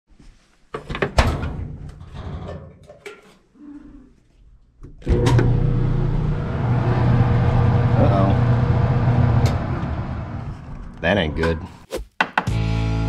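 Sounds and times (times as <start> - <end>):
dryer motor humming: 5.1 - 10.7.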